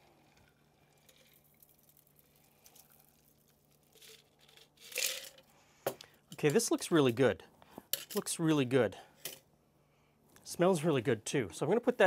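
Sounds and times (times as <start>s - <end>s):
faint liquid trickle: 0.0s - 4.0s.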